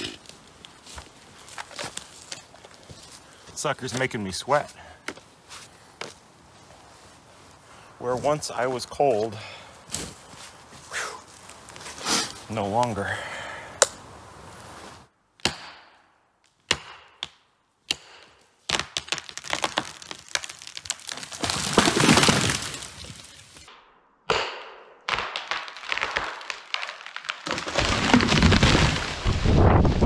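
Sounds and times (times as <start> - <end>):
branches cracking and snapping: 0.2 - 3.3, 18.7 - 23.7, 25.2 - 30.0
tree trunk cracking: 18.7 - 23.7, 25.1 - 30.0
tree crashing down: 19.0 - 23.6, 25.3 - 30.0.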